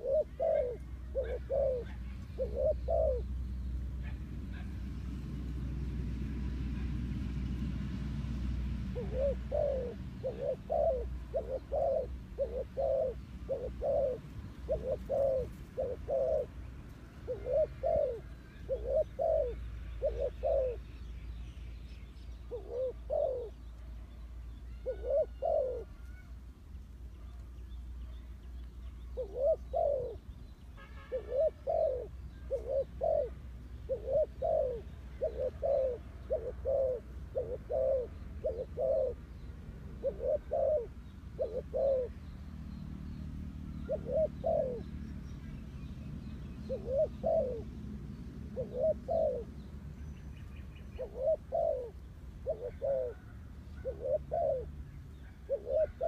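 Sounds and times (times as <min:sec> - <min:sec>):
dove cooing: 0:00.0 - 0:05.0, 0:08.8 - 0:21.0, 0:22.4 - 0:23.7, 0:24.6 - 0:26.3, 0:29.0 - 0:30.4, 0:31.1 - 0:42.3, 0:43.6 - 0:45.0, 0:46.6 - 0:47.8, 0:48.4 - 0:49.6, 0:50.5 - 0:56.0.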